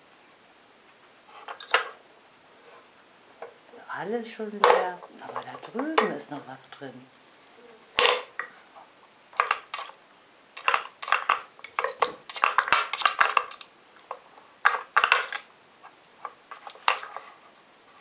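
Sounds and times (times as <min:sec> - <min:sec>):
wooden puzzle toy clacking: 0:10.6 - 0:13.7, 0:14.6 - 0:15.5.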